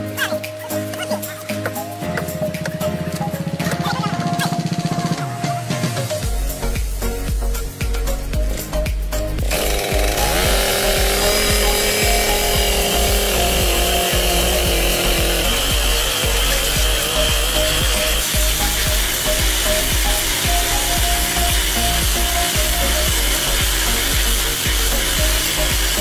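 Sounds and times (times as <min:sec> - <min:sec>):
rail grinder whining and grinding: 0:09.4 - 0:26.0.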